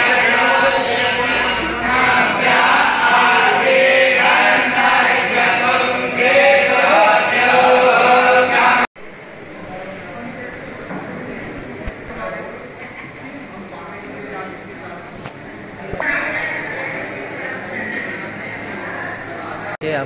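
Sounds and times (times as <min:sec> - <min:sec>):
men chanting in unison: 0:00.0 - 0:08.9.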